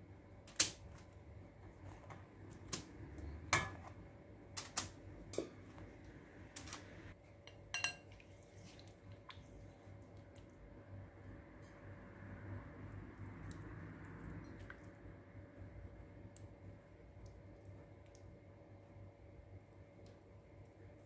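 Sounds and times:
brush clinking on ceramic bowl: 7.5s - 8.2s.

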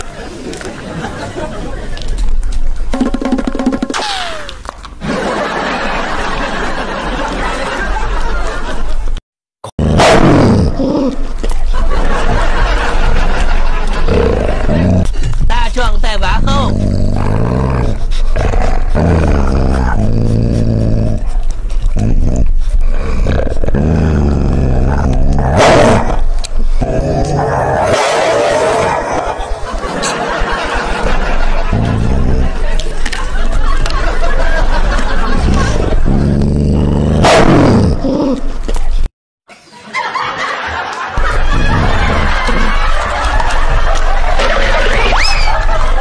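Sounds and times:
dog growling: 9.8s - 15.4s, 16.6s - 32.9s, 35.0s - 39.1s.

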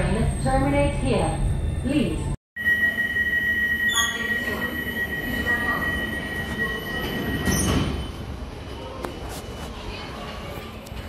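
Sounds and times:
low station rumble: 0.0s - 11.0s
steady high warning beep: 2.6s - 8.3s.

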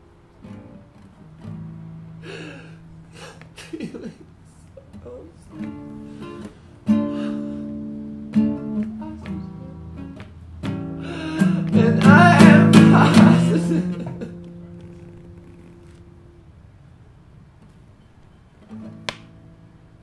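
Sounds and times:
classical guitar plucked: 0.0s - 3.6s, 4.8s - 16.5s, 17.6s - 20.0s
man singing: 11.1s - 14.3s.

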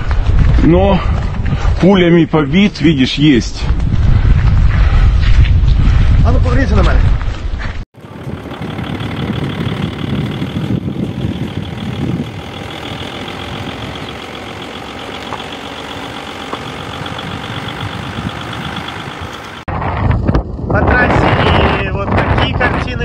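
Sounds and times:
vehicle engine running: 8.0s - 20.0s.

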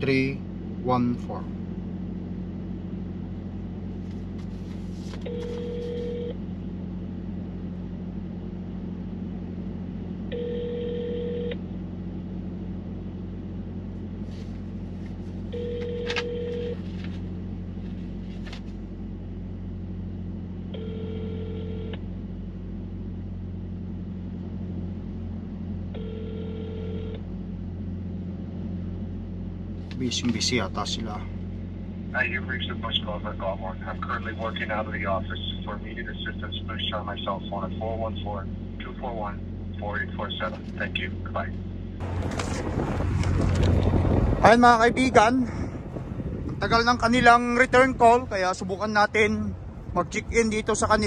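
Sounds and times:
steady low hum: 0.0s - 51.0s
telephone ringback tone: 5.2s - 6.4s, 10.3s - 11.6s, 15.5s - 16.8s, 20.8s - 22.0s, 26.0s - 27.2s.

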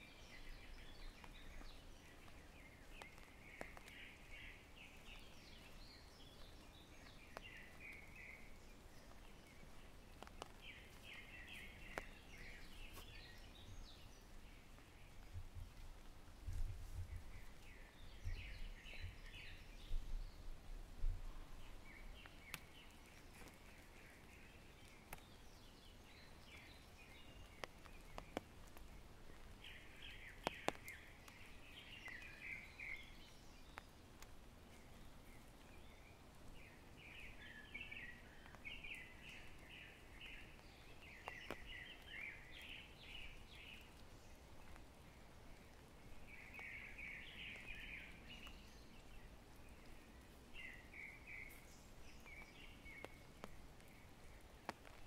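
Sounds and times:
songbirds chattering: 0.0s - 16.1s, 21.3s - 55.0s.

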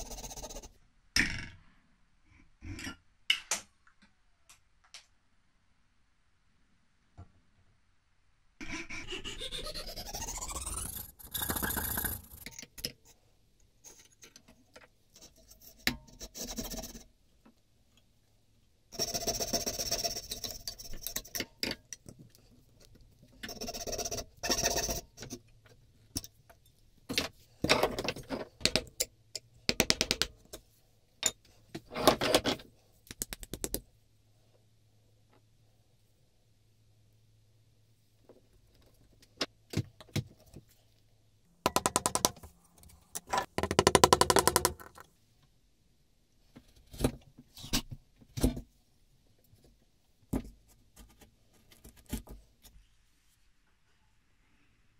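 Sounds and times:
rising squeal: 8.8s - 11.2s.

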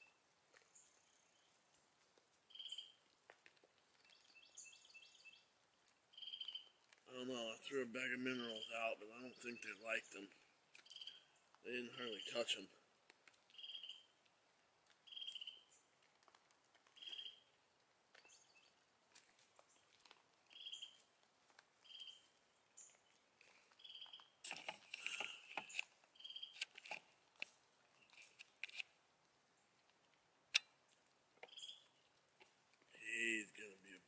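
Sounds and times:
rustling and crunching: 0.0s - 4.6s, 5.4s - 7.1s, 12.9s - 33.0s
small bird chirping: 2.5s - 3.1s, 4.0s - 6.8s, 8.3s - 12.7s, 13.5s - 14.2s, 15.0s - 16.0s, 16.9s - 17.6s, 18.2s - 18.8s, 20.5s - 21.1s, 21.8s - 27.0s, 30.5s - 32.2s.

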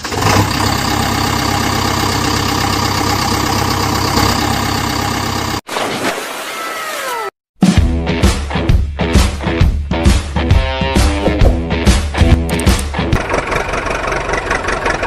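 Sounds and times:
engine idling: 0.0s - 5.6s, 12.6s - 15.0s
music: 7.6s - 13.2s.

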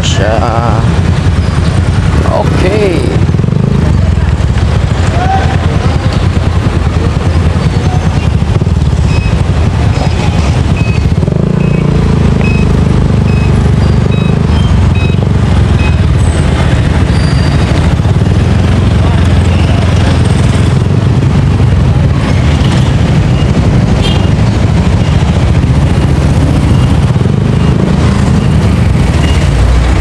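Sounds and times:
road traffic passing: 0.0s - 30.0s
motorcycle engine idling: 0.1s - 30.0s
short beeps: 9.0s - 16.1s, 26.4s - 29.6s.

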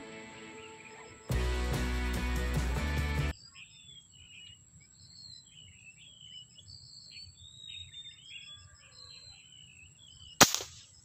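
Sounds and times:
small birds chirping: 3.3s - 11.0s.

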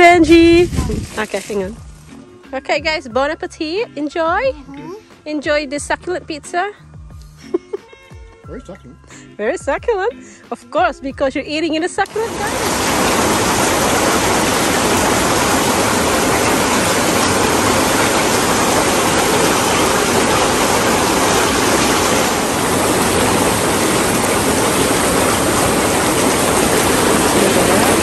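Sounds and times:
air blower running: 12.1s - 28.0s
water churning and bubbling: 12.1s - 28.0s.

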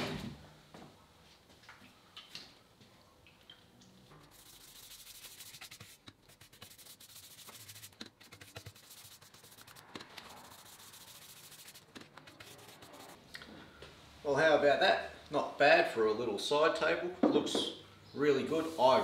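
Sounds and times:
brush bristles rubbing wood: 4.3s - 13.2s.

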